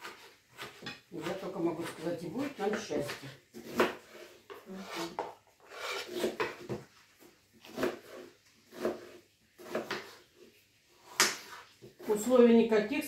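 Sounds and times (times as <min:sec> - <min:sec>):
knife chopping on wooden board: 0:00.0 - 0:04.3, 0:04.9 - 0:06.8, 0:07.6 - 0:10.2, 0:11.0 - 0:12.1
potato scraped off board: 0:00.0 - 0:06.9, 0:07.6 - 0:12.3.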